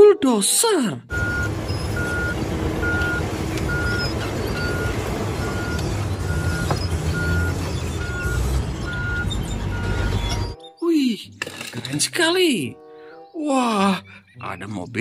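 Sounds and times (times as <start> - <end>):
backup alarm beeping: 1.1 - 10.6
bulldozer diesel engine rumbling: 1.1 - 10.8.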